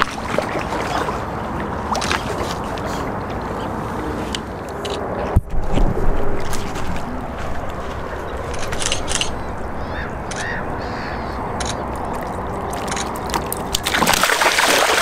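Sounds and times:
fish splashing in water: 0:00.0 - 0:02.8, 0:10.4 - 0:15.0
steady low rumble: 0:02.6 - 0:13.8
short bird calls: 0:09.8 - 0:11.4.

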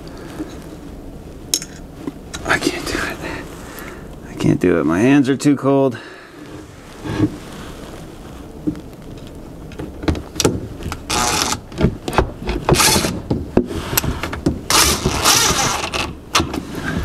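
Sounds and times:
cordless drill driving screws: 0:14.7 - 0:16.1.

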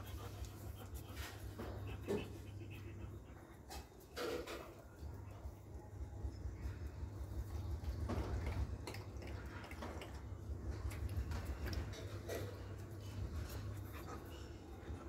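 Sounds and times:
dog lapping water from bowl: 0:08.2 - 0:12.8.

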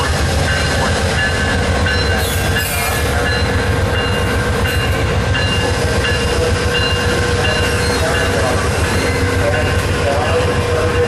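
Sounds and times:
train rumbling past: 0:00.0 - 0:11.0
high wheel squeal: 0:06.8 - 0:09.4.

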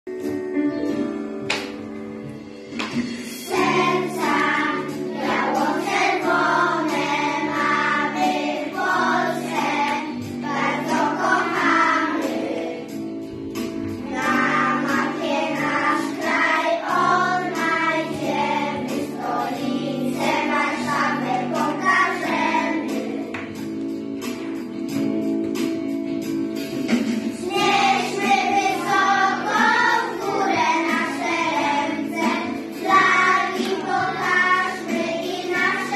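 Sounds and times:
instrumental accompaniment: 0:00.1 - 0:35.9
children singing: 0:03.5 - 0:23.4, 0:27.3 - 0:35.9.

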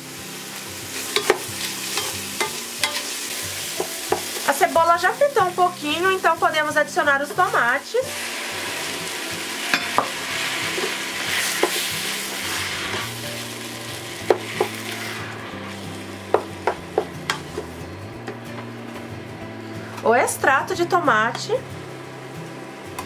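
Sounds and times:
tomatoes sizzling in hot oil: 0:00.0 - 0:19.1
wooden spoon knocking on pot: 0:16.3 - 0:17.6.

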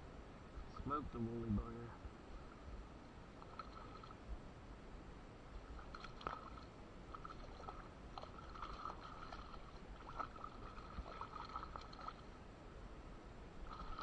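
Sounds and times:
fish splashing at surface: 0:05.8 - 0:12.2, 0:13.6 - 0:14.0.

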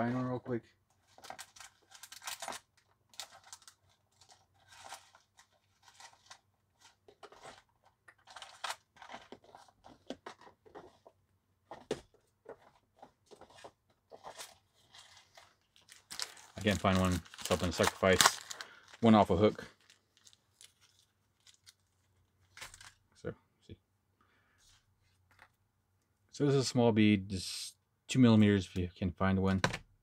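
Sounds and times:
rustling and crinkling: 0:00.9 - 0:23.0.

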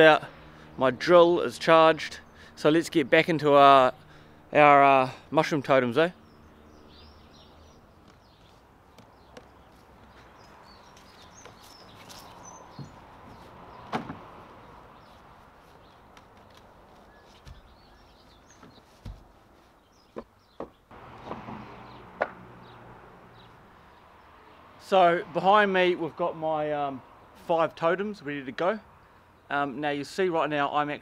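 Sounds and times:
logs knocking on the ground: 0:20.2 - 0:22.4.

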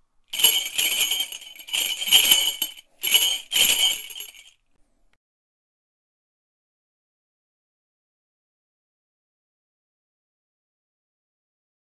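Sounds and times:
small bells jingling: 0:00.3 - 0:04.6.

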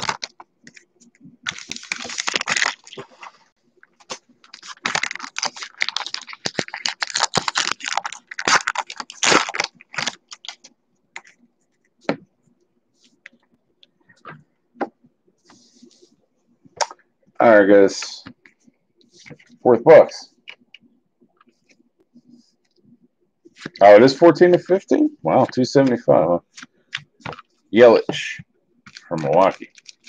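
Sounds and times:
wrappers crinkling and tearing: 0:00.0 - 0:00.8, 0:01.4 - 0:11.3, 0:28.9 - 0:30.0.

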